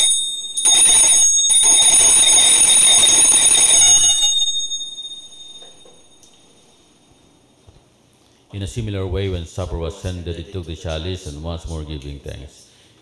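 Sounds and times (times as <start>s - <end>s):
altar bells jangling: 0.0s - 6.7s.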